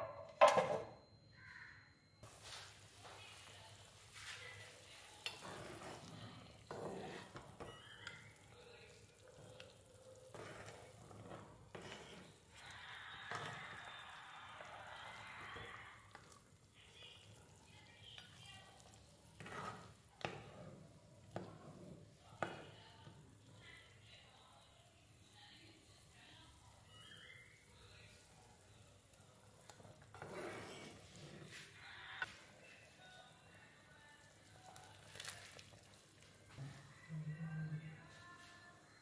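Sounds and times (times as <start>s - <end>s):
meat bubbling and sizzling: 2.2s - 23.6s, 34.2s - 36.5s
metal spatula scraping pan: 5.2s - 8.2s, 10.2s - 12.5s, 19.3s - 20.8s, 30.1s - 31.6s.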